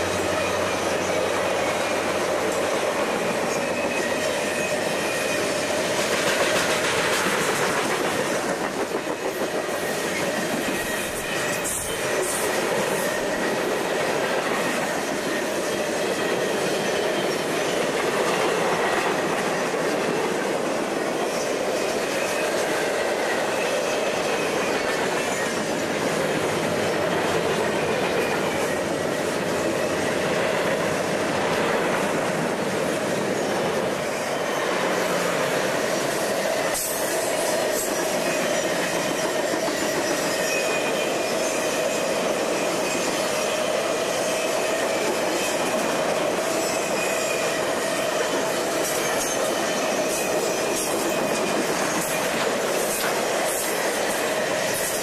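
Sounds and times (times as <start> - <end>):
train wheels clattering over rails: 0.0 - 55.0
wheel squeal: 3.3 - 5.8, 9.8 - 13.6, 33.4 - 45.7.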